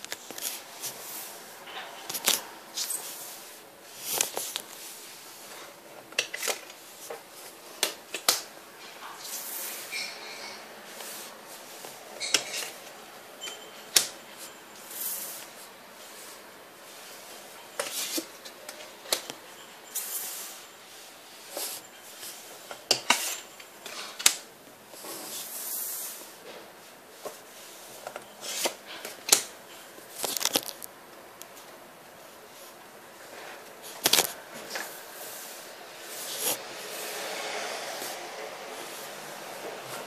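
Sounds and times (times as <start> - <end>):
rustling scrapes: 0.1 - 5.8, 24.9 - 26.6, 27.2 - 29.1, 32.5 - 40.0.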